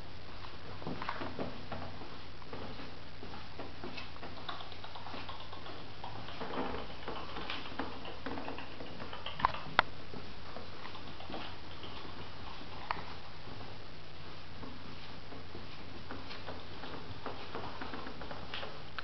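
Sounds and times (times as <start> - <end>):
puppy claws clicking on tiles: 3.9 - 9.9.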